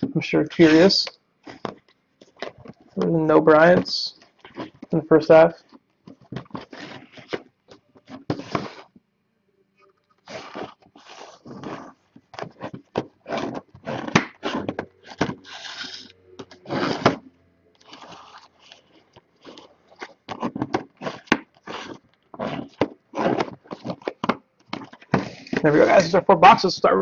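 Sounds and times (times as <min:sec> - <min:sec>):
boxes scraping on wooden table: 0:00.5 - 0:02.8, 0:05.6 - 0:08.9, 0:10.2 - 0:17.2, 0:17.8 - 0:26.2
plastic wrapping crinkling: 0:17.8 - 0:26.1.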